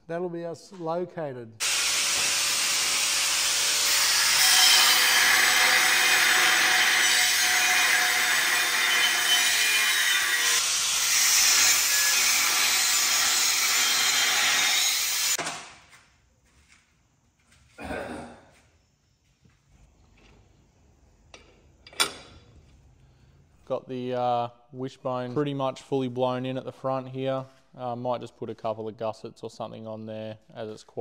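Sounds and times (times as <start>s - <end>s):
power tool rasping hiss: 1.6s - 15.4s.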